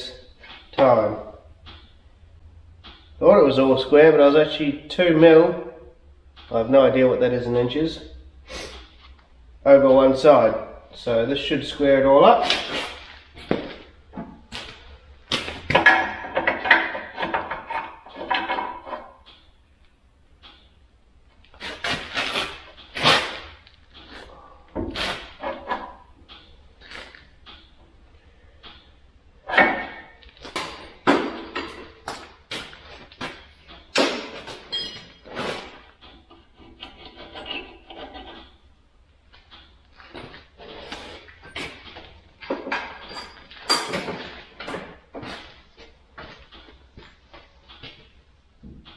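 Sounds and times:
metal rattling and scraping: 0:12.3 - 0:19.4, 0:21.6 - 0:38.7
steel parts knocking and clanking: 0:15.4 - 0:19.5, 0:28.6 - 0:32.6, 0:33.2 - 0:38.7, 0:41.4 - 0:45.6
steel parts knocking and clattering: 0:15.6 - 0:19.4
short metallic ring: 0:34.7 - 0:35.2.

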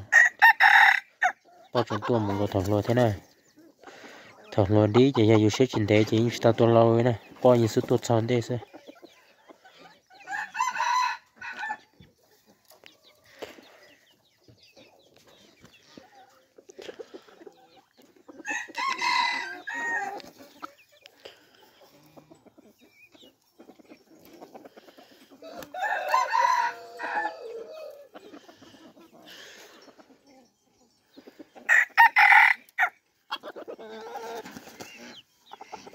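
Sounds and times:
rooster crowing: 0:00.0 - 0:01.3, 0:10.3 - 0:11.8, 0:18.4 - 0:20.2, 0:25.4 - 0:28.1, 0:31.7 - 0:32.9
hens clucking softly: 0:01.2 - 0:10.6, 0:11.2 - 0:31.7, 0:32.6 - 0:35.9.

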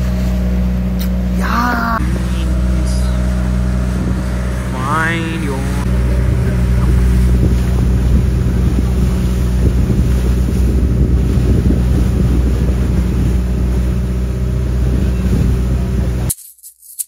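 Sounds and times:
boat engine running: 0:00.0 - 0:16.3
wind noise on microphone: 0:03.6 - 0:04.7, 0:05.8 - 0:16.3.

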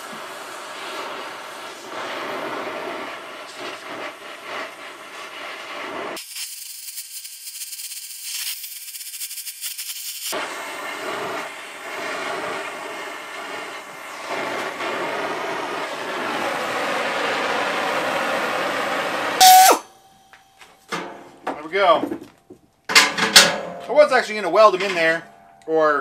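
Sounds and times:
torch flame hissing: 0:00.0 - 0:19.8
flame sharp pop: 0:01.8 - 0:04.7, 0:09.7 - 0:16.5.

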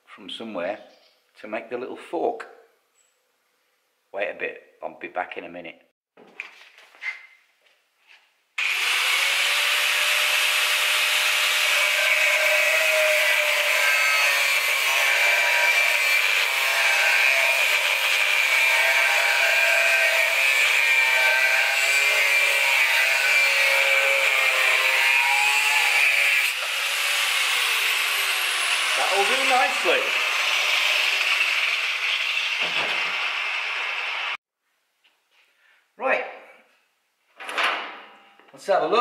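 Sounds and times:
angle grinder cutting steel: 0:08.6 - 0:34.4.

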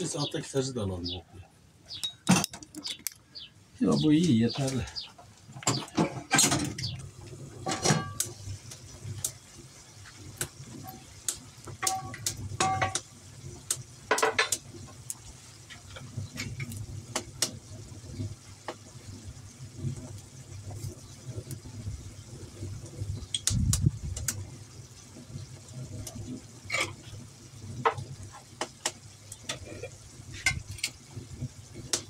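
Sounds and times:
hard objects clicking and clinking: 0:02.0 - 0:03.3.

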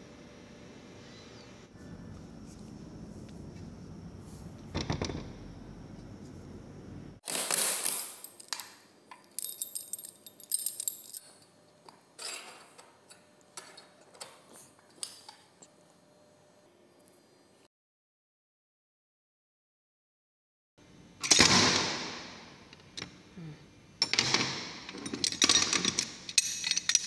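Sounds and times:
metal tools clinking: 0:09.4 - 0:11.5, 0:12.2 - 0:12.8, 0:24.9 - 0:27.0.

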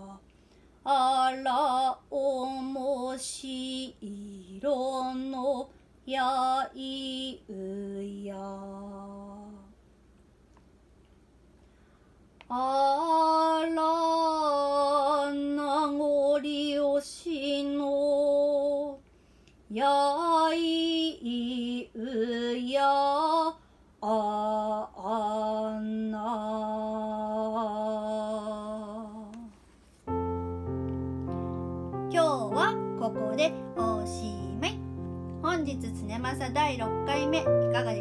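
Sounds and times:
keyboard tune: 0:30.1 - 0:38.0
person chanting: 0:32.1 - 0:38.0.

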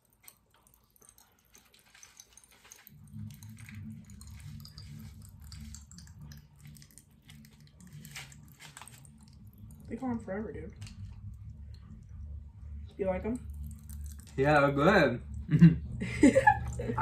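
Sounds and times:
hard candy crackling: 0:00.0 - 0:12.0, 0:13.4 - 0:15.0
low rumble: 0:02.9 - 0:17.0.

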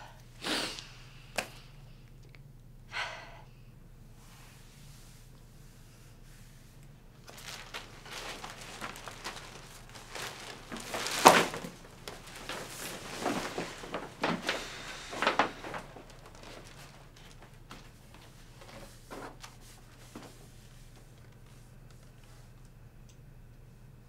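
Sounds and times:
plastic bag rustling: 0:07.1 - 0:21.6.

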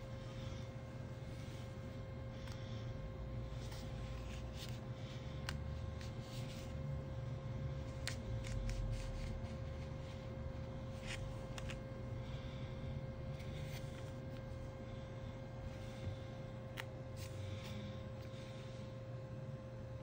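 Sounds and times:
faint hum: 0:00.0 - 0:20.0.

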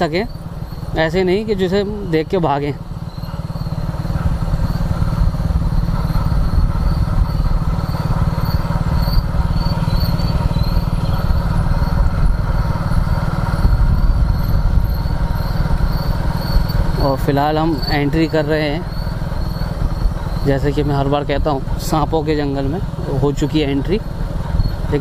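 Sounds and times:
crickets chirping: 0:00.0 - 0:01.8, 0:02.8 - 0:12.2, 0:12.8 - 0:21.1, 0:23.8 - 0:25.0
motorcycle engine running: 0:00.0 - 0:25.0
low wind rumble on microphone: 0:03.2 - 0:25.0.

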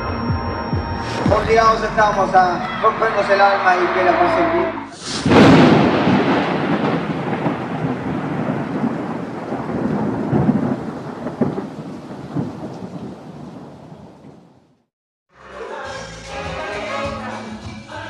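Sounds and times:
thunder-like rumbling: 0:05.0 - 0:14.8.

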